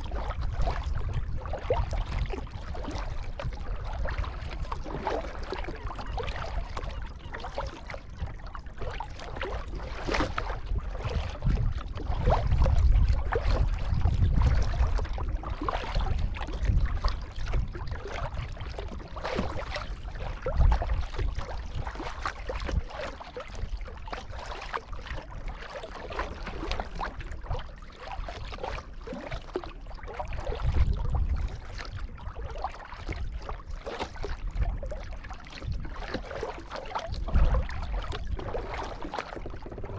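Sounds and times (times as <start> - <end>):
paddle splashing in water: 0.0 - 39.9
low rumbles: 39.0 - 39.9.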